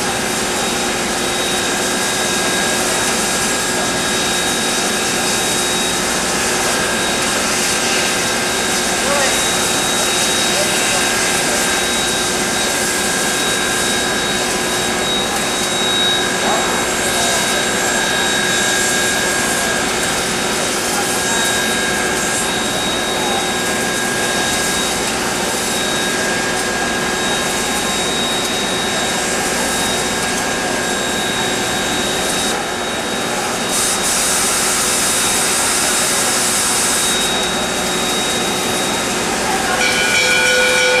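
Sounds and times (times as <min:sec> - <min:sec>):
steam locomotive hissing: 0:00.0 - 0:41.0.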